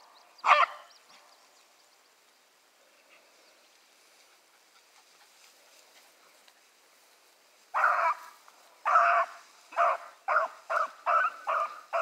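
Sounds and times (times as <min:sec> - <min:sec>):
hound baying: 0:07.7 - 0:12.0.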